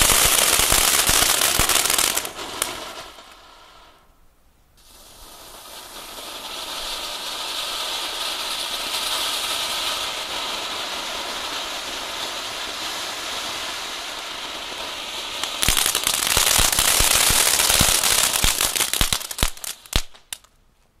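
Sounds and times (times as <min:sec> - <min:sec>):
firework fountains hissing: 0:00.0 - 0:04.2, 0:04.8 - 0:20.4
crackling rapid pops: 0:15.5 - 0:20.6.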